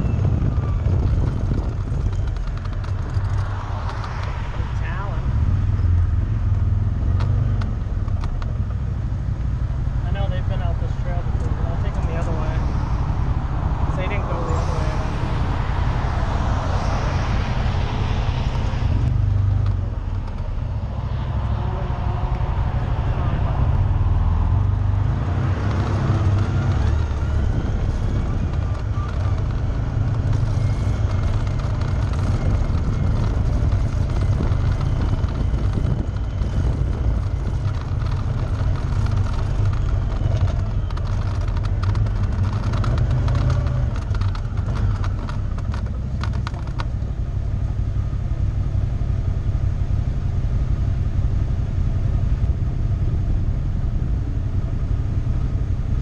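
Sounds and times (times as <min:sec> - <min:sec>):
fast clicking and rattling: 0:00.0 - 0:04.3, 0:25.5 - 0:47.1
vehicle engine rumbling: 0:00.0 - 0:56.0.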